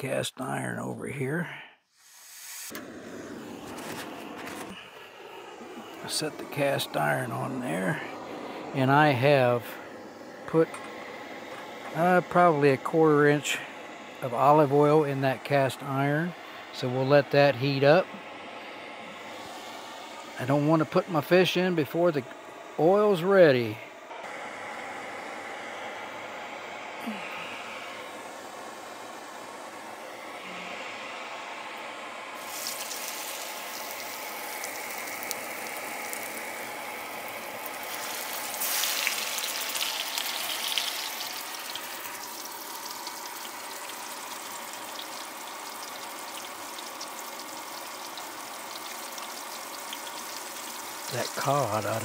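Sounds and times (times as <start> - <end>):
low hiss of hot oil: 1.3 - 52.0
fish sizzling in hot oil: 1.9 - 2.7, 32.4 - 52.0.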